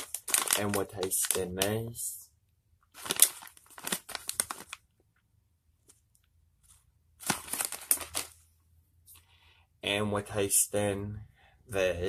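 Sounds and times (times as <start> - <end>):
plastic snack bag crinkling: 0.0 - 1.9, 2.9 - 5.0, 7.2 - 8.4.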